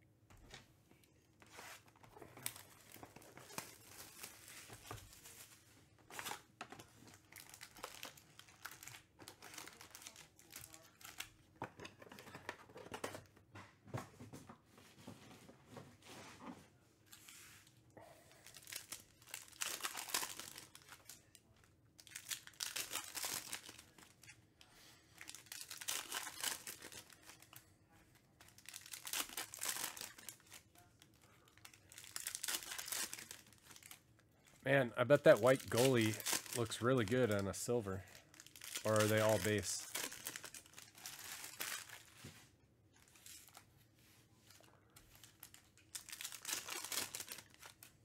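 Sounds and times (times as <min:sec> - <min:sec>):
plastic wrapper crinkling and tearing: 0:01.7 - 0:11.4, 0:18.3 - 0:42.2, 0:43.0 - 0:43.6, 0:44.5 - 0:48.0.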